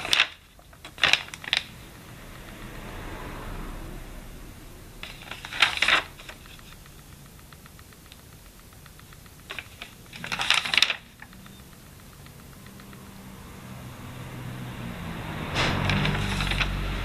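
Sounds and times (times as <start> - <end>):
notebook pages turning: 0.0 - 1.8, 5.0 - 8.2, 8.8 - 13.0, 15.4 - 17.0.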